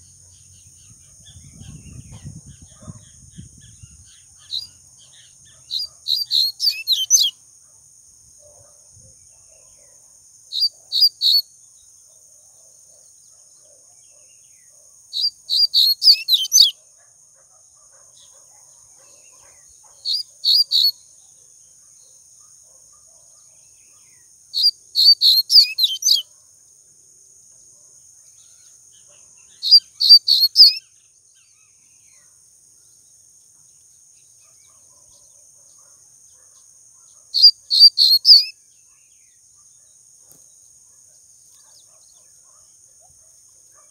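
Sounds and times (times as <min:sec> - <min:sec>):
seedeater bird singing: 0:00.0 - 0:07.4, 0:10.5 - 0:11.5, 0:15.1 - 0:16.8, 0:19.0 - 0:21.0, 0:23.6 - 0:26.3, 0:28.6 - 0:31.8, 0:37.2 - 0:38.6.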